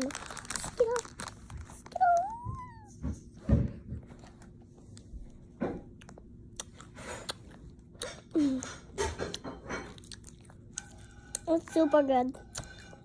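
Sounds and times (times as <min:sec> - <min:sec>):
child's voice: 0:00.0 - 0:01.2, 0:01.8 - 0:03.0
child chewing candy: 0:00.0 - 0:02.7, 0:04.4 - 0:13.0
wet mouth clicks and smacks: 0:06.0 - 0:08.2.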